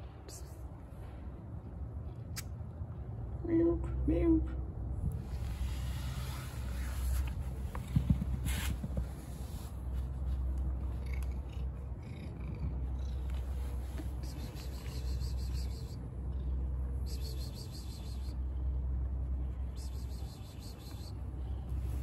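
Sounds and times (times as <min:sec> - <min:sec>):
cat purring: 0:06.6 - 0:17.4.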